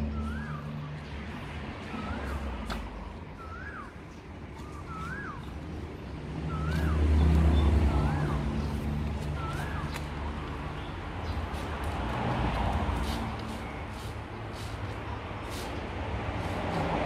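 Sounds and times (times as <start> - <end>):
bird call rising and falling: 0.0 - 10.4
vehicle engine rumble: 0.0 - 17.0.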